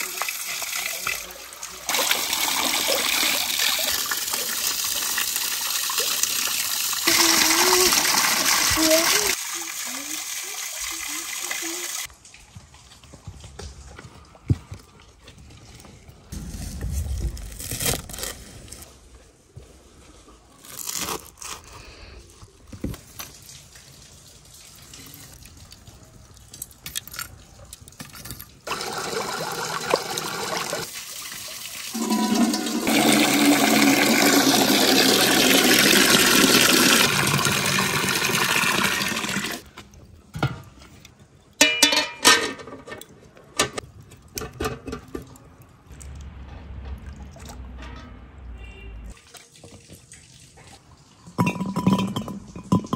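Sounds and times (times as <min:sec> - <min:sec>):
water gushing and bubbling: 0:31.9 - 0:39.6.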